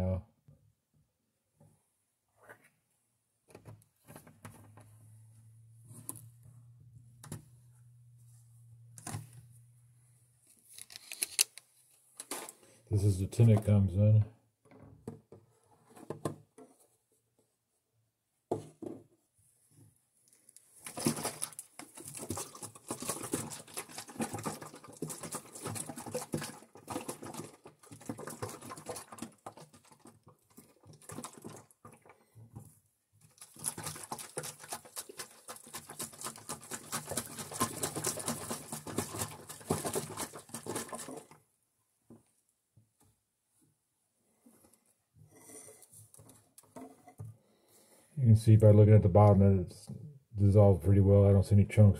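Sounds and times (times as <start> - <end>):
liquid sloshing in shaken bottle: 20.8 - 32.2, 33.2 - 41.4.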